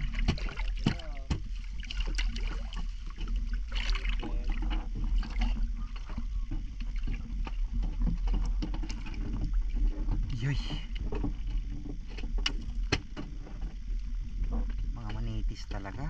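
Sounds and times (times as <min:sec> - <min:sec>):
water splashing from swimmer: 0:00.0 - 0:07.6
steady low rumble: 0:00.0 - 0:16.0.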